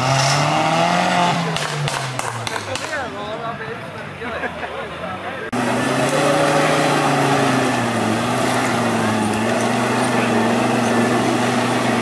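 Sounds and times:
suv engine running at low revs: 5.5 - 12.0.

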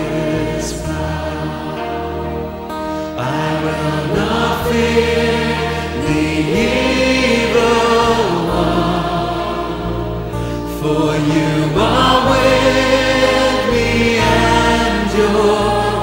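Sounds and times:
choir singing a hymn: 0.0 - 16.0.

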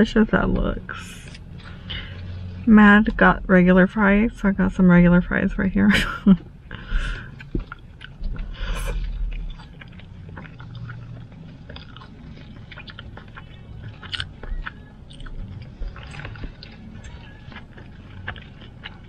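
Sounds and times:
person chewing fries: 0.9 - 2.7, 6.4 - 19.0
wet mouth clicks and smacks: 7.2 - 19.0.

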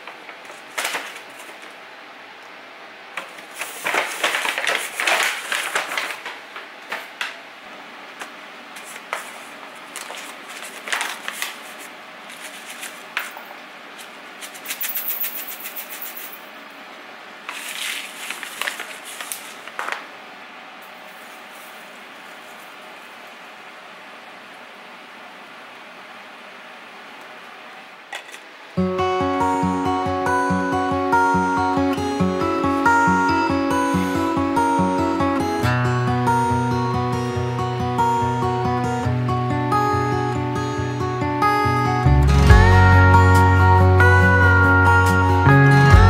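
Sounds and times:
paper packet crinkling: 0.0 - 1.7, 3.2 - 7.2, 8.8 - 16.2, 17.4 - 20.1, 20.9 - 23.0
paper bag rustling: 0.0 - 1.8, 3.2 - 7.3, 8.2 - 16.4, 17.4 - 20.1, 20.8 - 23.2
loose tea leaves pattering: 20.9 - 22.8.

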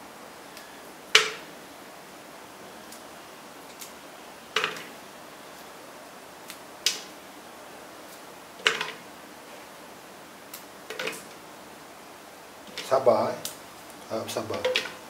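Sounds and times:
food dropped into plastic jar: 8.6 - 9.0, 10.9 - 11.3, 14.5 - 15.0.

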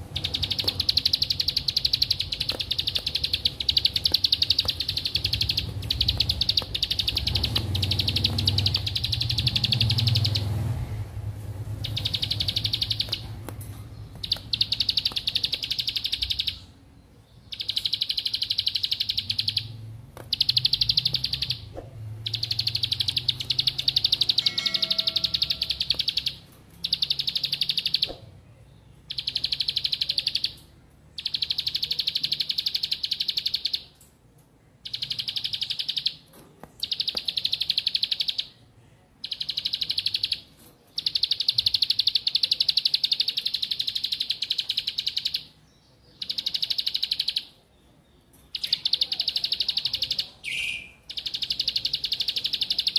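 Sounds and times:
bird singing buzzing trills: 0.0 - 10.6.

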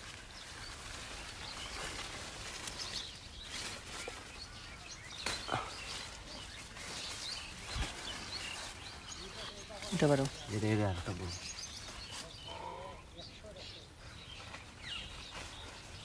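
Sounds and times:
leaves rustling and crackling: 0.0 - 16.0.

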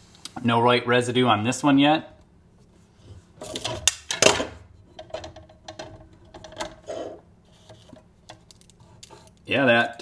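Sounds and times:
metal clicks and knocks: 3.5 - 6.8.

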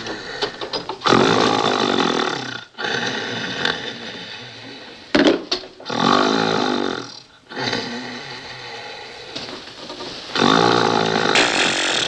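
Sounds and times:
man snoring: 0.0 - 5.0, 5.8 - 9.3, 10.4 - 12.0
sharp snort: 10.4 - 12.0.

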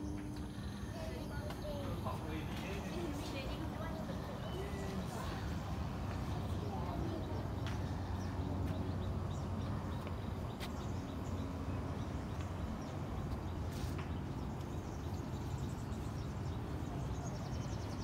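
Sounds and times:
low outdoor rumble: 0.0 - 18.0.

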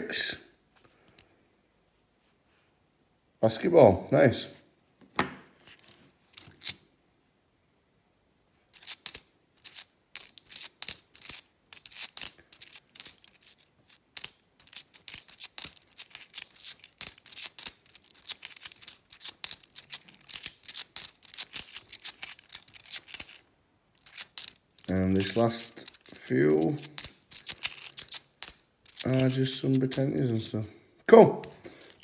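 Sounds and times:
coins clicking: 5.8 - 6.8, 8.8 - 23.4, 24.0 - 30.7, 31.4 - 32.0.

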